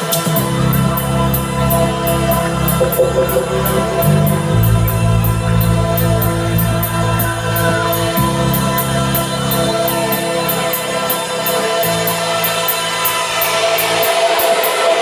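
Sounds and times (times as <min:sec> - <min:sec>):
dance music over pa system: 0:02.8 - 0:05.4.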